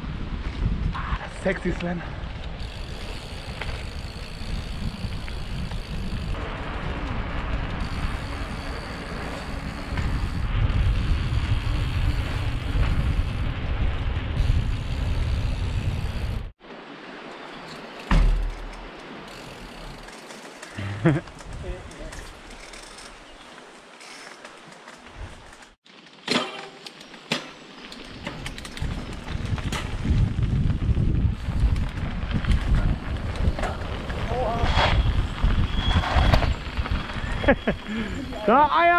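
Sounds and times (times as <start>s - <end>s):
wind on microphone: 0.0s - 16.5s, 28.2s - 38.4s
bike tyres on gravel and tarmac: 0.0s - 38.9s
loud thump: 18.1s - 18.7s.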